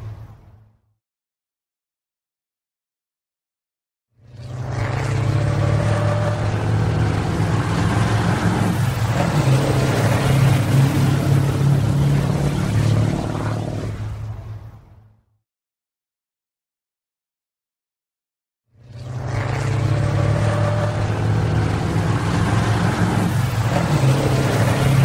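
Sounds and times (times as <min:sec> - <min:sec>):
truck engine droning: 0:04.3 - 0:14.9, 0:18.9 - 0:25.0.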